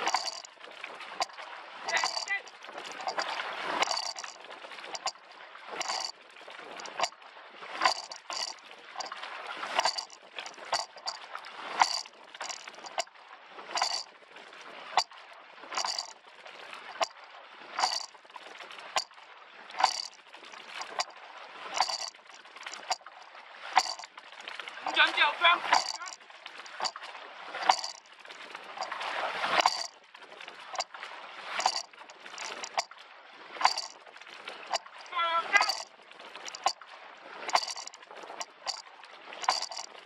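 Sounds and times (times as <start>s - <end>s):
oars knocking in oarlocks: 0.0s - 5.2s, 5.8s - 7.2s, 7.8s - 13.1s, 13.8s - 14.1s, 15.0s - 16.2s, 17.0s - 17.2s, 17.8s - 18.2s, 19.8s - 21.1s, 21.7s - 24.2s, 24.8s - 30.0s, 30.7s - 30.9s, 31.5s - 32.9s, 33.6s - 34.0s, 34.7s - 36.8s, 37.4s - 40.0s
water rushing along hull: 0.0s - 40.0s
small clicks: 1.2s - 5.2s, 5.8s - 6.1s, 6.8s - 7.1s, 7.8s - 9.1s, 9.8s - 11.2s, 11.8s - 13.1s, 13.8s - 14.1s, 19.8s - 20.2s, 20.8s - 21.1s, 21.8s - 23.1s, 23.8s - 24.1s, 25.7s - 27.0s, 27.6s - 28.0s, 31.6s - 32.9s, 33.6s - 34.0s, 34.7s - 36.8s, 37.5s - 38.8s, 39.4s - 39.9s.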